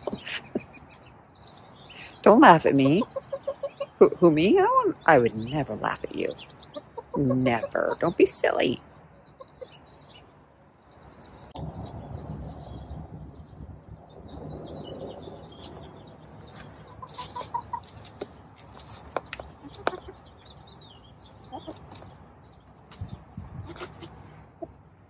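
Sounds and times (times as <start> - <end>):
hens clucking: 0.0 - 1.0, 2.0 - 9.8, 16.5 - 18.2, 18.8 - 20.5, 21.3 - 22.1
hens pecking at cardboard: 16.5 - 20.2.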